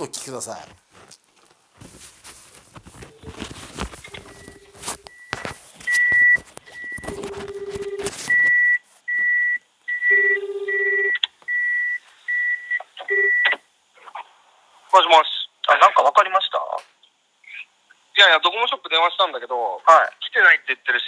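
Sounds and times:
buzzing ringback tone: 4.0s - 8.6s, 10.0s - 11.2s.

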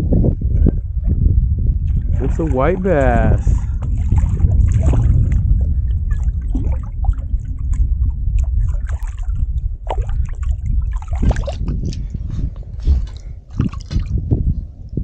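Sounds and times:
low rumble: 0.0s - 15.0s
fish splashing in water: 2.0s - 11.7s, 13.0s - 14.2s.

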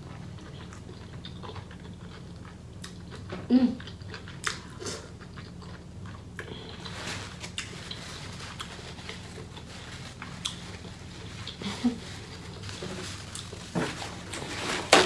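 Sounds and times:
steady low hum: 0.0s - 15.0s
wet chewing and lip smacking: 0.1s - 6.9s, 10.4s - 10.6s.

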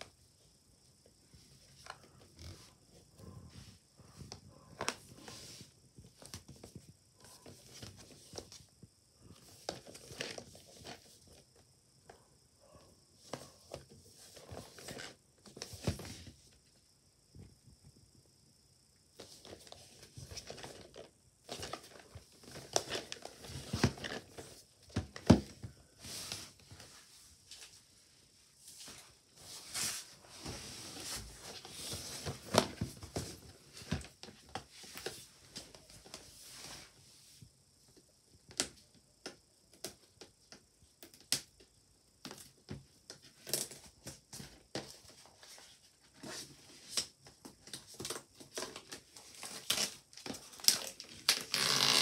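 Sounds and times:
plastic wrap crinkling: 47.9s - 52.0s.

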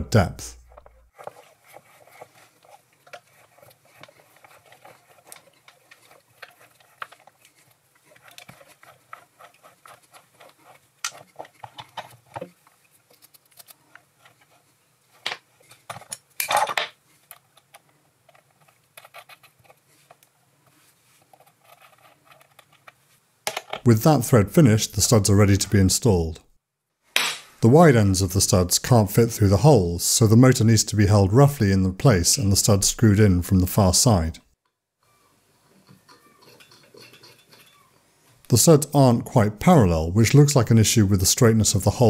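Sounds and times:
die cutting metal clicks and scrapes: 35.7s - 38.0s.

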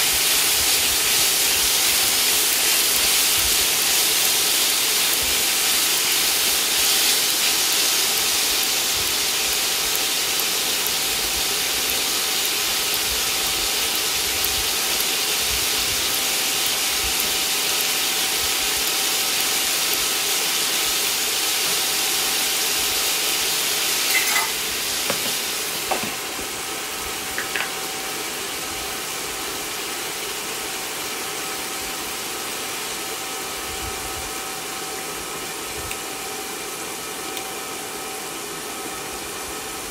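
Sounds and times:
food sizzling in a wok: 0.0s - 39.9s
glass lid clinking: 24.1s - 26.2s, 27.4s - 27.8s.

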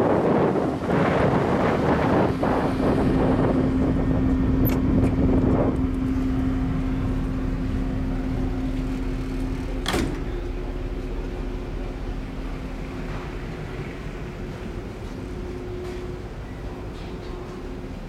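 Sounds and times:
wind rushing: 0.0s - 5.9s
ferry machinery drone: 0.0s - 18.0s.

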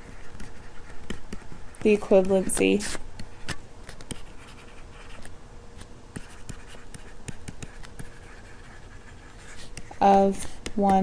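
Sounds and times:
stylus scratching on screen: 0.0s - 11.0s.

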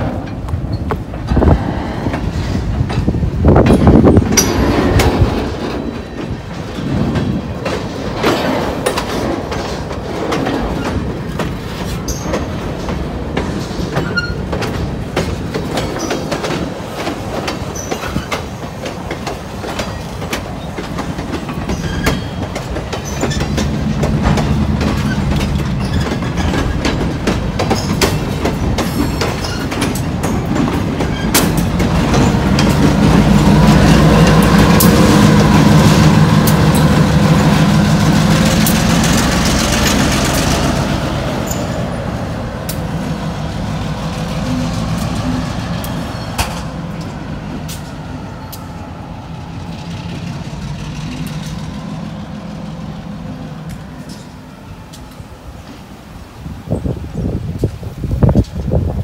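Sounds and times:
train wheels clanking over rail joints: 0.0s - 59.0s
wheel squeals: 11.8s - 12.6s, 13.9s - 14.6s, 21.5s - 26.9s, 41.4s - 41.8s.

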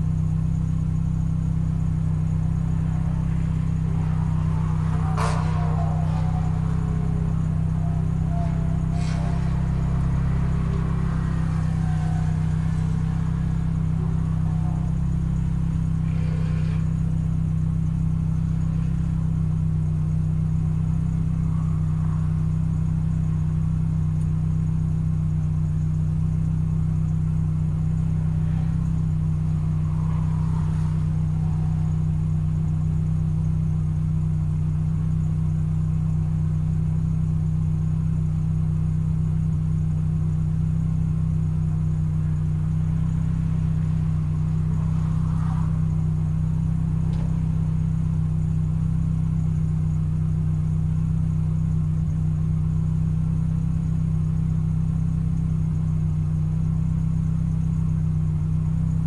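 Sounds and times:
car engine idling: 0.0s - 59.0s
faint ticks: 47.1s - 47.4s.

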